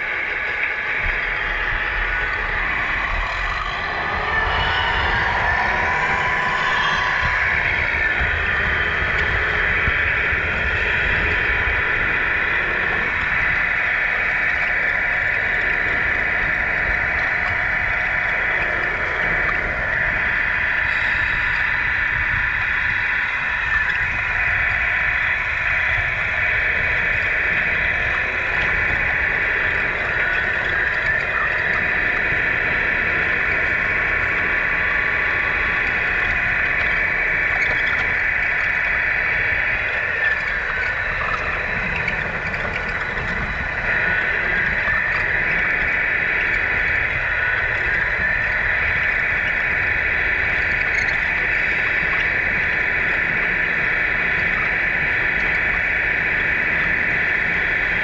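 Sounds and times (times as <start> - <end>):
low rumble: 0.7 - 13.4.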